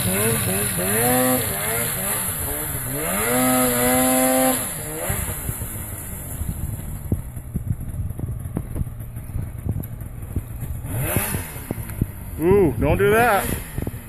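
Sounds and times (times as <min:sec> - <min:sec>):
snowmobile engine revving: 0:00.0 - 0:07.2, 0:10.2 - 0:14.0.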